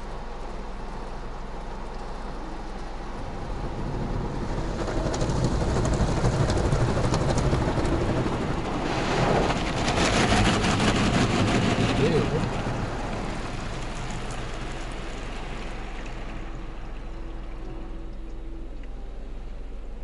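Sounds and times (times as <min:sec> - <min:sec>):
car wash machinery: 0:00.0 - 0:20.0
water spraying on windshield: 0:04.1 - 0:17.6.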